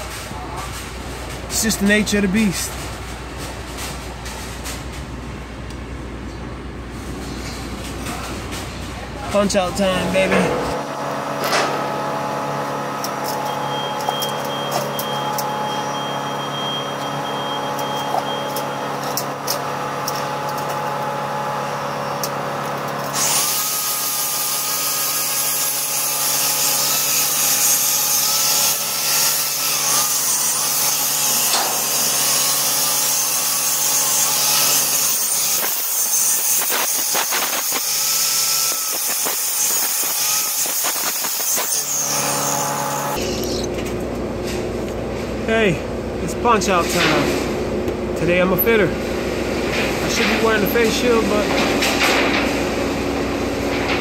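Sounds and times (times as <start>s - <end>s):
machinery hum: 0.0s - 23.1s
angle grinder grinding metal: 21.9s - 43.7s.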